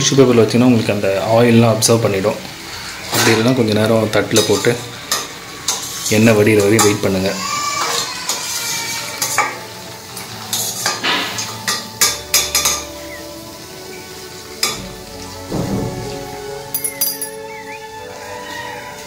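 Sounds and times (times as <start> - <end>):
oil sizzling: 0.0 - 19.0
skimmer scraping and clinking pan: 2.8 - 7.1, 7.7 - 15.4.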